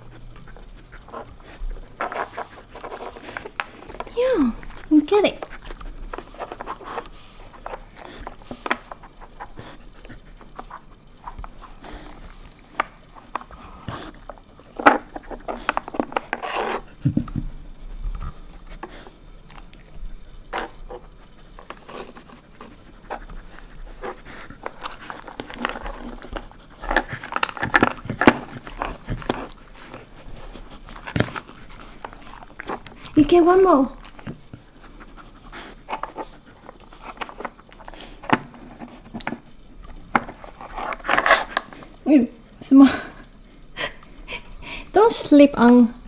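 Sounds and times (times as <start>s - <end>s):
dog panting: 0.0s - 17.2s, 18.1s - 39.6s.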